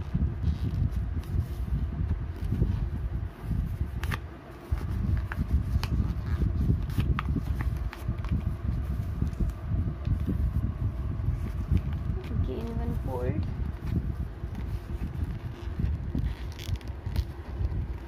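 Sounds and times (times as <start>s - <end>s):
low rumble: 0.0s - 18.0s
paper folding and rustling: 0.4s - 10.6s, 11.3s - 18.0s.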